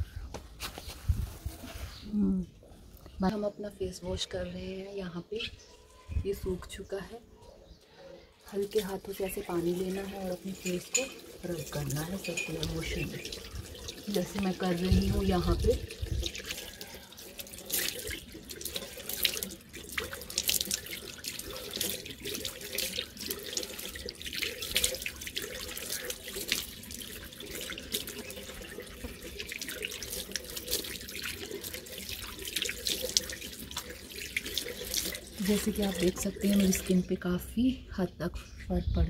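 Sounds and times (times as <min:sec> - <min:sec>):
water splashing on face: 0:08.6 - 0:37.0
tap running into a washbasin: 0:08.8 - 0:36.9.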